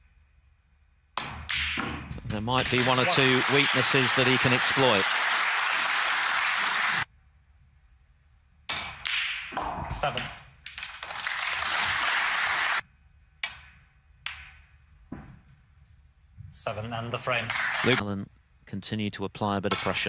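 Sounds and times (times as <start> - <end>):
audience applause: 2.5 - 7.0, 10.7 - 12.8, 17.5 - 18.0
snooker balls clicking: 13.4 - 14.7.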